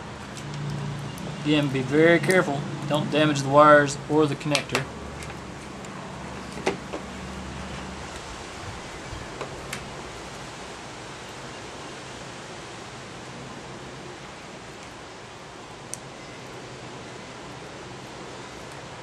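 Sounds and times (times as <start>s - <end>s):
room noise hiss: 0.0s - 19.0s.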